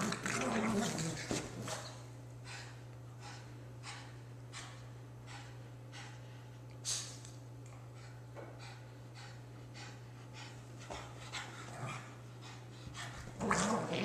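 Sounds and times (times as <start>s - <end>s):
dog panting: 2.4s - 6.6s, 7.7s - 13.4s.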